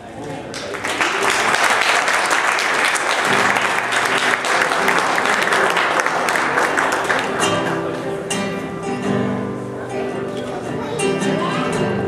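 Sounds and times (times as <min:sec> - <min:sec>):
audience applauding: 0:00.2 - 0:08.3
acoustic guitar softly plucked: 0:07.2 - 0:12.0.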